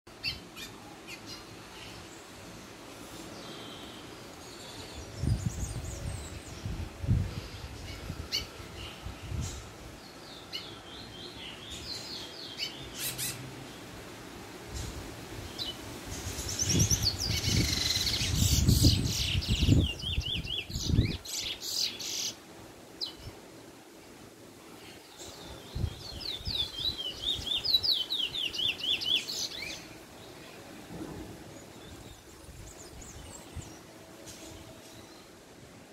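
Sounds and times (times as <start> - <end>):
steady background noise: 0.1 - 35.9
finch twittering song: 15.5 - 22.4, 25.0 - 30.4.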